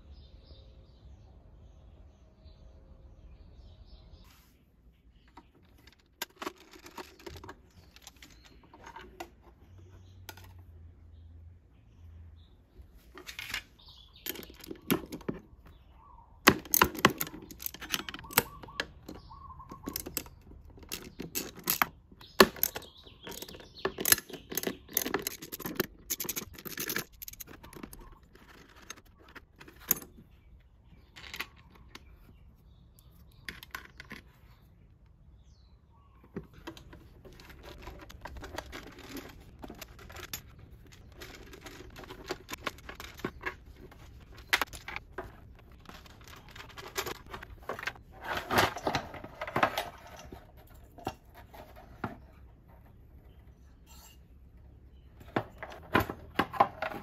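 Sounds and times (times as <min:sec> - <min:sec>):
metal parts clinking and knocking: 0:05.3 - 0:09.6, 0:13.2 - 0:32.3, 0:33.0 - 0:34.4, 0:36.3 - 0:52.5, 0:55.1 - 0:57.0.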